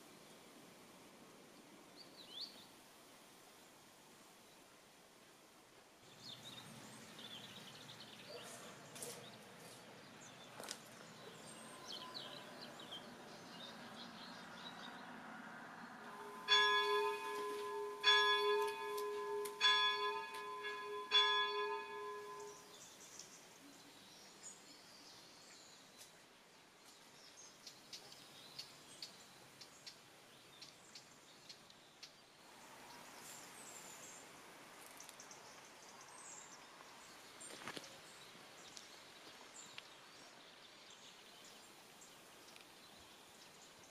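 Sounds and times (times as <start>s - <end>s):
church bell striking: 16.0s - 22.7s.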